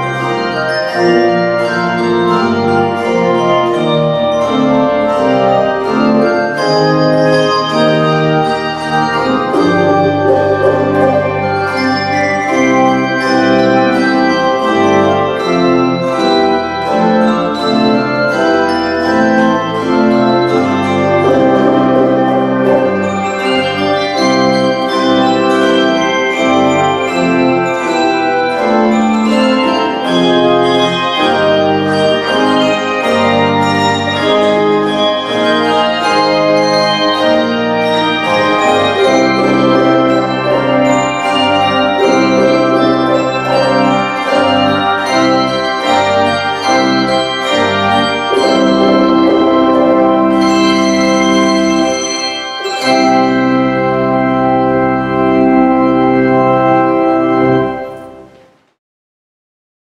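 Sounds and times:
organ chords: 0:00.0 - 0:58.8.

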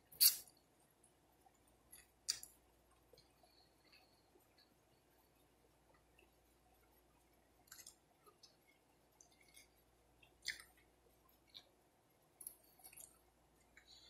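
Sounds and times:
mouth clicks: 0:00.1 - 0:00.4.

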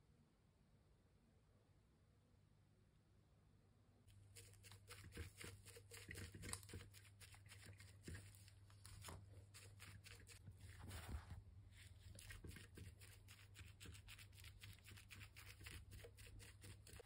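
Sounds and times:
paint applicator scratching stone: 0:04.3 - 0:08.4, 0:12.1 - 0:17.0.

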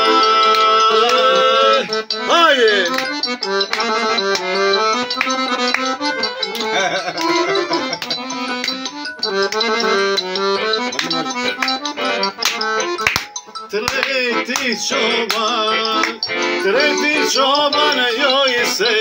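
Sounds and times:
accordion folk melody: 0:00.0 - 0:19.0
hand claps: 0:00.4 - 0:16.5.

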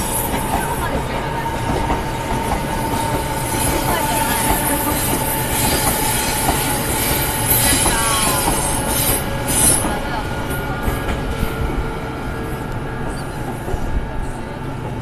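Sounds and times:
train wheels clattering: 0:00.0 - 0:11.8.

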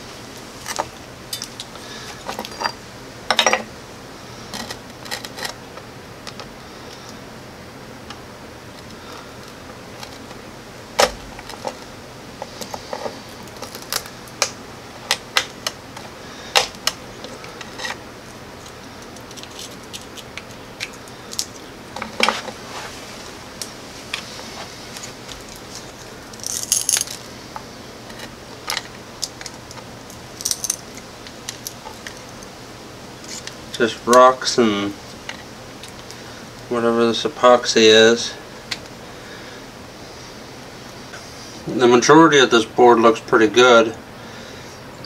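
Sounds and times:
pieces rattling: 0:26.3 - 0:27.2, 0:30.4 - 0:30.8
small hard pieces clicking and clinking: 0:26.3 - 0:27.2, 0:30.4 - 0:32.2.

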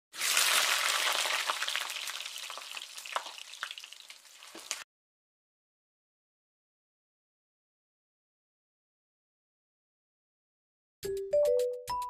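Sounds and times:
sizzling crackling hiss: 0:00.2 - 0:04.8.

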